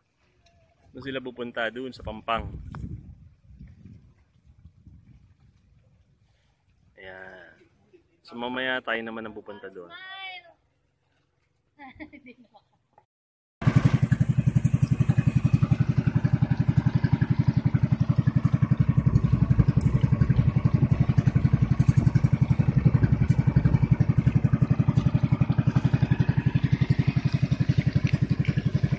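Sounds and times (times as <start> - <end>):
small boat engine chugging: 13.6 - 28.9.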